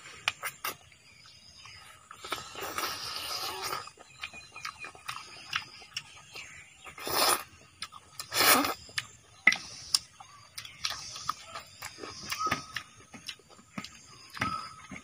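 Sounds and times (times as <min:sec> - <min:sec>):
chewing and lip-smacking: 0:01.6 - 0:15.0
wet slurping: 0:02.2 - 0:04.5, 0:06.9 - 0:07.6, 0:08.2 - 0:08.8.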